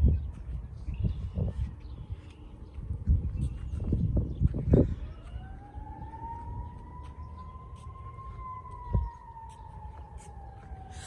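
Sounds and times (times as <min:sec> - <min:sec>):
distant siren wailing: 0:03.9 - 0:11.0.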